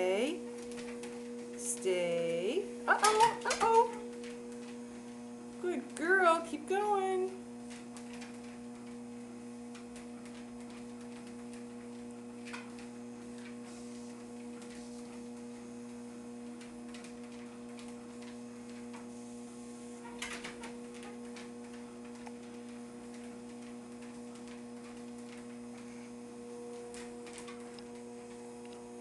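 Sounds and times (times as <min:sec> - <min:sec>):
dog's feet clicking on belt: 0:00.0 - 0:19.1, 0:20.0 - 0:28.4
treadmill motor humming: 0:00.0 - 0:29.0.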